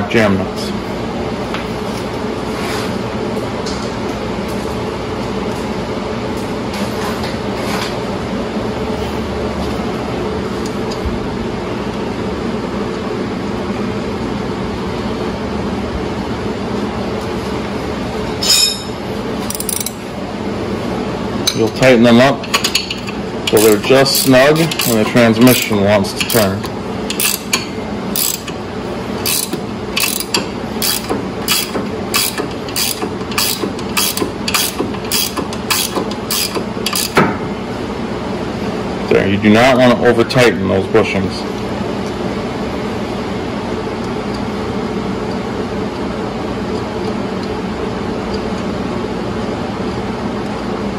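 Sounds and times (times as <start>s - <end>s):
mechanical hum: 0.0s - 50.9s
ratcheting wrench clicking: 19.5s - 20.0s, 22.5s - 25.6s, 27.1s - 27.6s, 28.2s - 28.6s, 29.2s - 37.2s.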